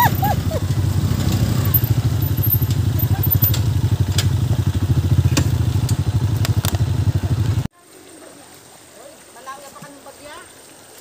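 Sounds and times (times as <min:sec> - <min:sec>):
motorcycle engine running: 0:00.0 - 0:07.7
sharp knocks and rattles: 0:00.7 - 0:07.2.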